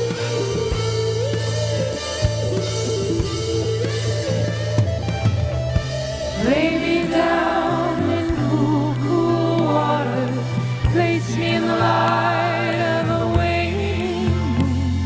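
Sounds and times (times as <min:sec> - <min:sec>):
bass line: 0:00.0 - 0:15.0
person singing: 0:06.4 - 0:15.0.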